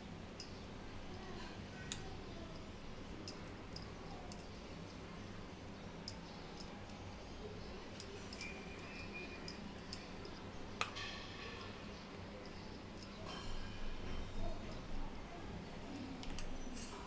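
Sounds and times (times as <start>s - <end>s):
metallic spoon clink: 8.0s - 10.4s, 12.4s - 13.6s.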